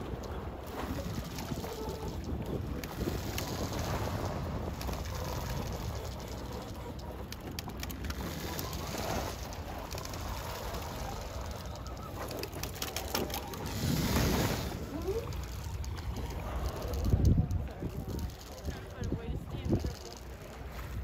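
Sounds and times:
faint clicks: 0.0s - 14.3s, 14.9s - 20.6s
wind rumbling on microphone: 0.0s - 21.0s.

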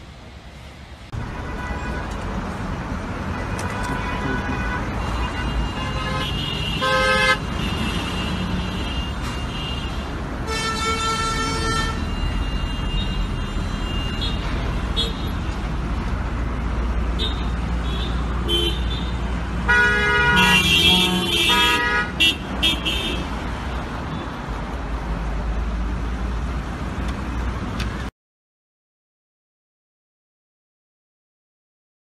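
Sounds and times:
highway traffic rumble: 0.0s - 28.1s
car horns honking: 1.2s - 2.2s, 3.3s - 15.4s, 17.1s - 23.4s.

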